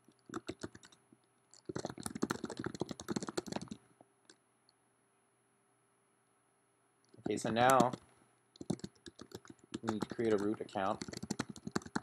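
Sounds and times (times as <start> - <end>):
typing on computer keyboard: 0.0 - 4.4, 7.1 - 8.0, 8.6 - 12.0.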